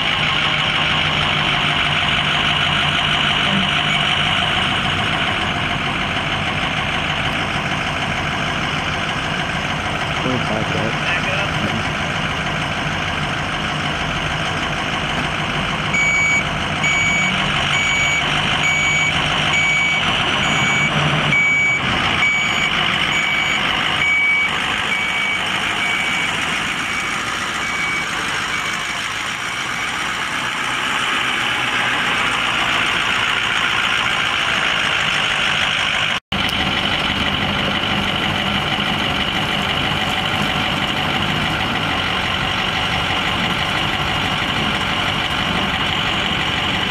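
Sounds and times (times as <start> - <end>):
diesel truck engine running: 0.0 - 46.9
backup alarm beeping: 15.9 - 29.0.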